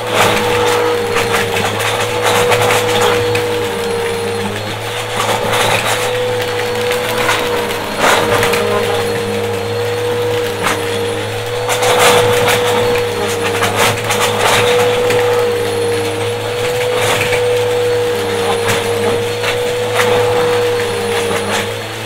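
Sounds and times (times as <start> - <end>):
vacuum cleaner running: 0.0 - 22.0.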